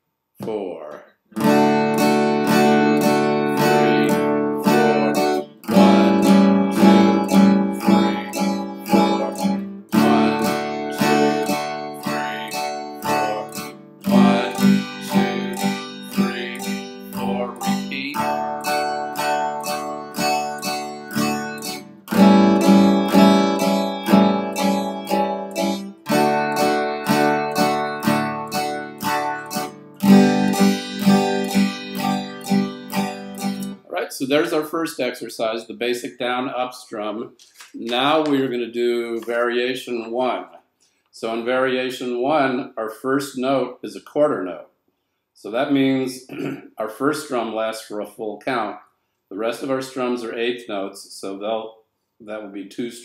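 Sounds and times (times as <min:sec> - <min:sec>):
acoustic guitar strumming: 0:01.3 - 0:33.9.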